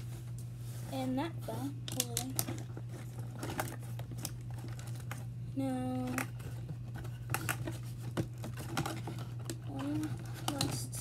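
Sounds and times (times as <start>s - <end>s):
toy packaging crinkling and clicking: 1.8s - 5.3s, 6.0s - 11.0s.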